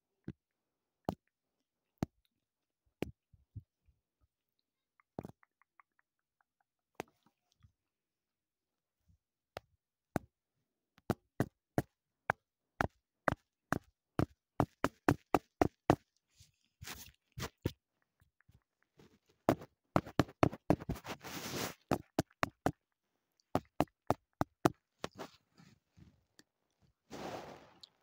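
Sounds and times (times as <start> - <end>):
rubbing: 19.0 - 22.4.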